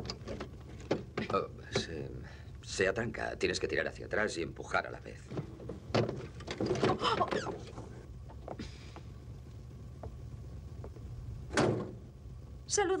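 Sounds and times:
small knocks: 0.0s - 2.0s.

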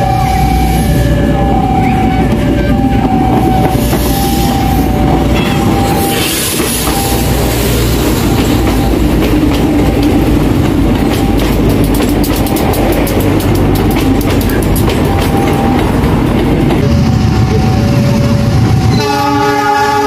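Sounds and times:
train rolling rumble: 0.0s - 20.0s
wheel clicks over rail joints: 10.9s - 16.5s.

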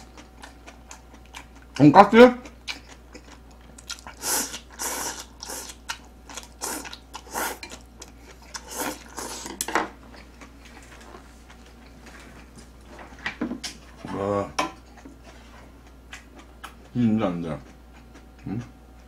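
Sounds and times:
person slurping noodles: 4.2s - 5.8s, 6.6s - 7.6s, 8.6s - 9.5s.

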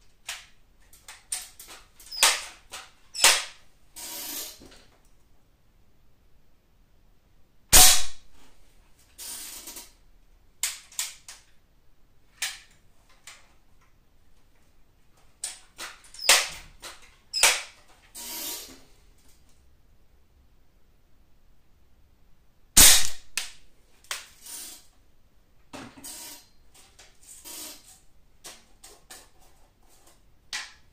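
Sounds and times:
air rifle shots: 7.8s - 8.2s, 22.8s - 23.3s.

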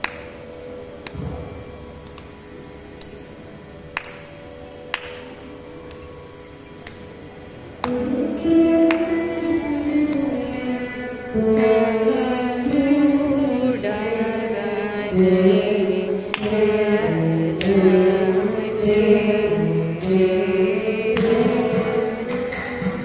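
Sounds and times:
veenas playing plucked notes: 4.8s - 23.0s.

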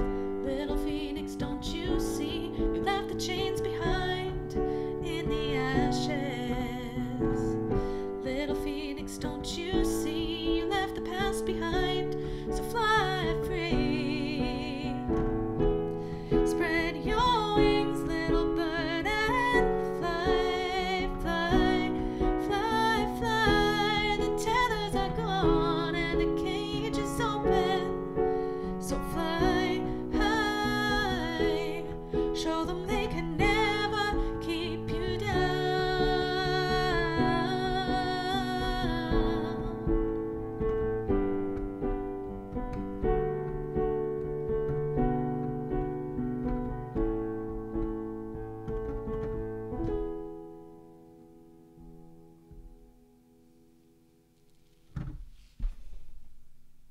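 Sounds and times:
wavering wordless melodic line: 0.0s - 54.9s
slow piano: 0.0s - 56.9s.

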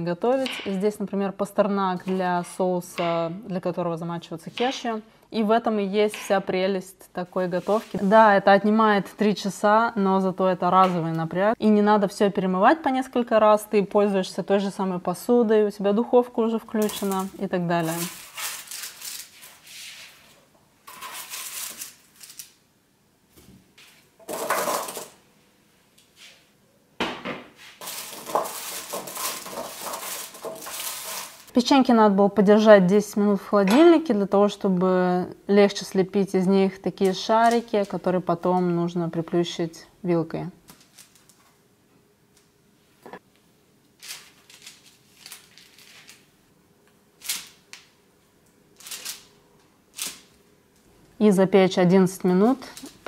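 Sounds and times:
spatula scraping baking tray: 7.4s - 8.4s, 17.8s - 20.2s, 20.9s - 21.8s, 27.8s - 31.5s
baking parchment rustling: 7.4s - 8.6s, 16.7s - 22.6s, 23.8s - 25.2s, 27.6s - 31.5s, 36.8s - 38.3s, 40.7s - 41.5s, 44.0s - 46.4s
vegetable sticks rustling and tapping: 16.8s - 19.7s, 27.8s - 31.5s, 37.0s - 38.7s.

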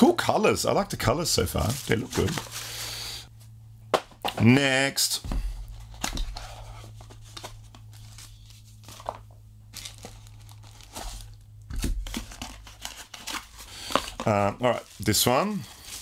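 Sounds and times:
cardboard rustling: 1.4s - 2.7s, 5.3s - 16.0s
plastic bag crinkling: 1.5s - 2.9s, 7.2s - 16.0s.

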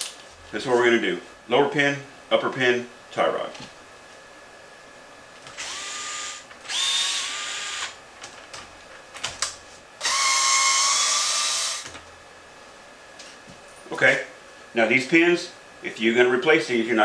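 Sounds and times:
cordless electric screwdriver running: 5.5s - 8.0s, 10.0s - 11.9s.

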